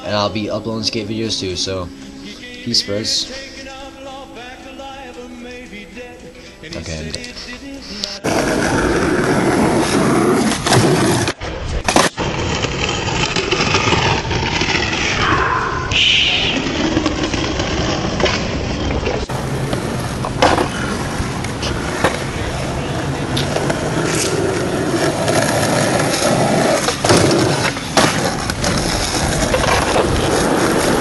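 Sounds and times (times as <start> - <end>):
skateboard wheels rolling on asphalt: 8.2 - 31.0.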